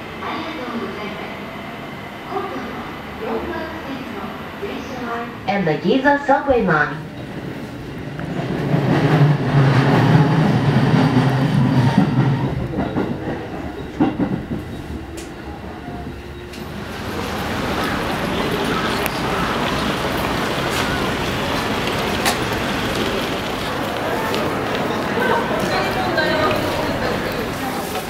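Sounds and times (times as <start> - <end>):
train rumbling on rails: 0.0 - 28.0
street traffic: 13.4 - 28.0.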